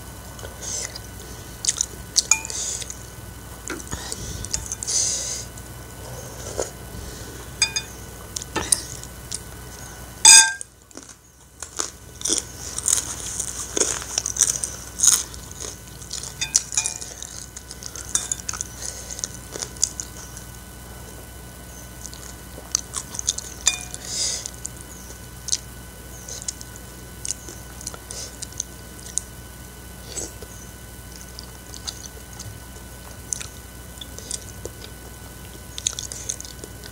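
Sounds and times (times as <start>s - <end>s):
person chewing noodles: 0.3s - 3.0s, 3.7s - 25.6s, 26.2s - 29.3s, 30.0s - 36.9s
spoon clinking on ceramic bowl: 2.3s - 2.6s, 7.6s - 7.9s, 10.3s - 10.6s, 23.7s - 24.0s.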